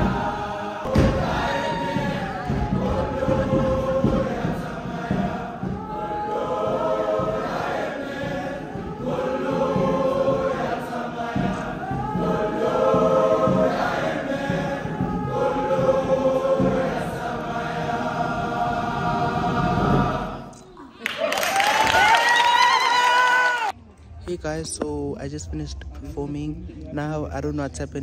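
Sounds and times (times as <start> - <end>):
choir singing: 0.0 - 21.0.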